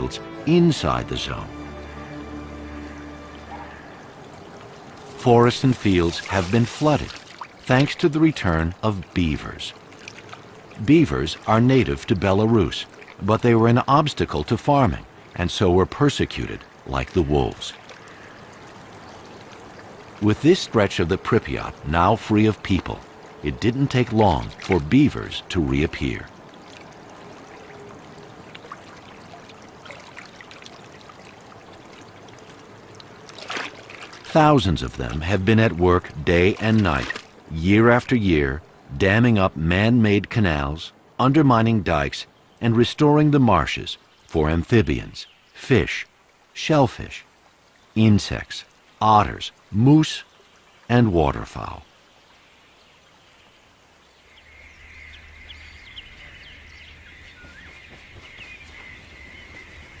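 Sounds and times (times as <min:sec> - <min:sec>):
birds chirping and calling: 0:00.0 - 0:08.0, 0:53.1 - 1:00.0
water drips: 0:00.0 - 0:38.9
river water trickling and lapping: 0:00.0 - 1:00.0.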